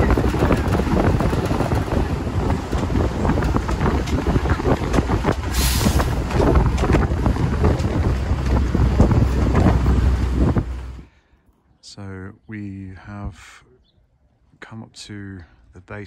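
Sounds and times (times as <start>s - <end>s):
wind on microphone: 0.0s - 11.1s
bus engine and road rumble: 0.0s - 16.0s.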